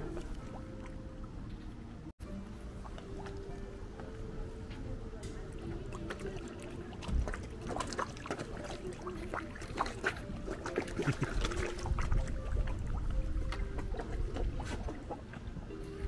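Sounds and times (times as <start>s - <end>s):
fish splashing and slurping: 0.0s - 1.5s, 2.2s - 16.0s.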